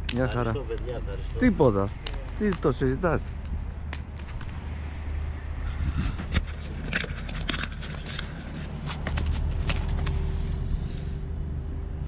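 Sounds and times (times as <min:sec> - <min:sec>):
low steady rumble: 0:03.2 - 0:12.0.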